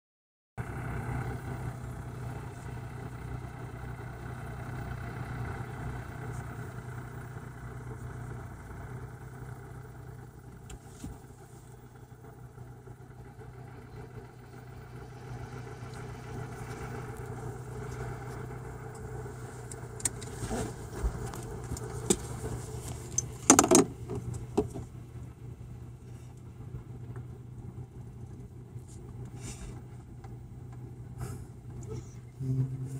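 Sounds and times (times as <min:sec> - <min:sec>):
vehicle engine idling: 0:00.6 - 0:32.9
sharp clicks and knocks: 0:23.1 - 0:24.9.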